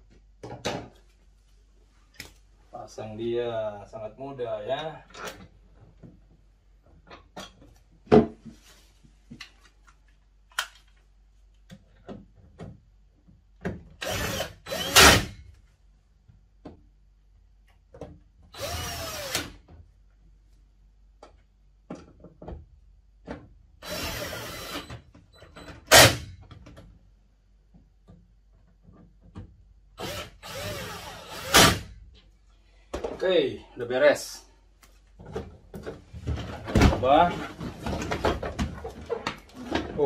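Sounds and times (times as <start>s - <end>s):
cordless drill driving screws: 14.0s - 15.3s, 18.6s - 19.6s, 23.8s - 24.9s, 30.0s - 31.9s.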